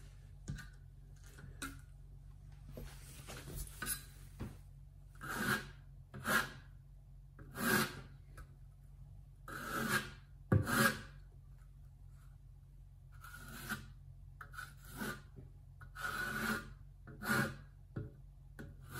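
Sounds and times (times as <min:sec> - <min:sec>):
trowel scraping mastic on wall: 0:05.2 - 0:06.7, 0:07.4 - 0:08.2, 0:09.5 - 0:11.2, 0:13.2 - 0:17.8.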